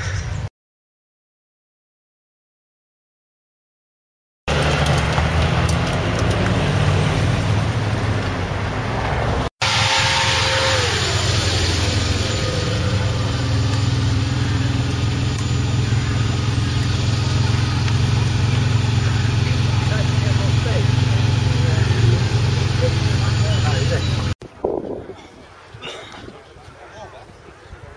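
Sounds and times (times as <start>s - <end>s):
car engines running at low revs: 4.5s - 24.4s.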